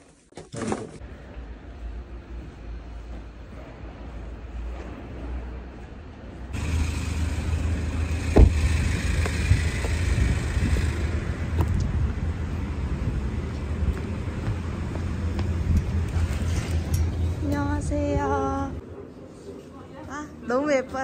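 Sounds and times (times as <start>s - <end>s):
low rumble of street traffic: 1.0s - 21.0s
sharp thump: 8.3s - 8.7s.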